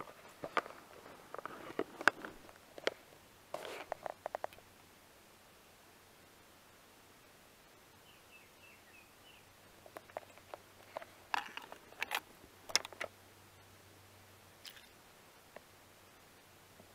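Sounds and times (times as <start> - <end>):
camera handling clicks and scrapes: 0.4 - 3.0, 3.6 - 4.5, 10.0 - 13.1.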